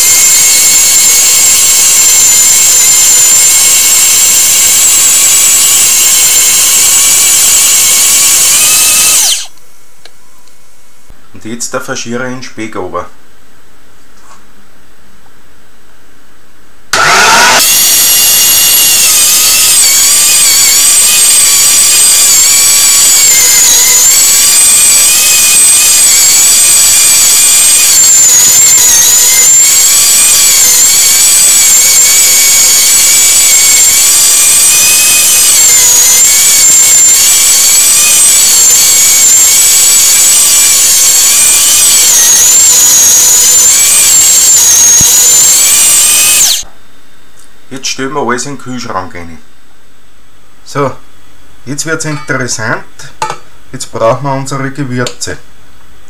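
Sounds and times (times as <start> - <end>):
electric meat grinder whining: 0.0 - 9.5, 16.9 - 46.6.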